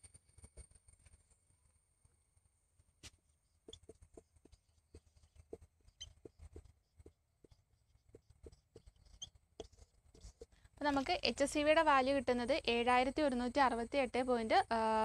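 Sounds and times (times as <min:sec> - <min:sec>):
marker tip squeaks: 0:05.9 - 0:06.6, 0:08.4 - 0:10.5.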